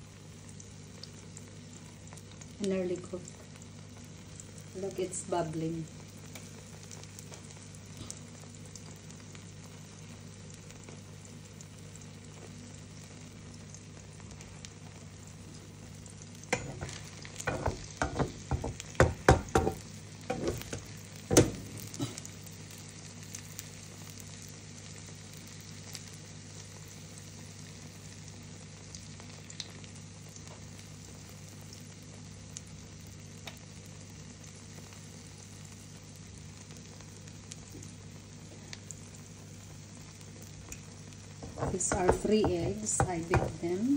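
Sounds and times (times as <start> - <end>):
omelette sizzling in frying pan: 0.0 - 43.9
spatula knocking against pan: 16.5 - 16.9, 17.5 - 21.6, 41.4 - 43.6.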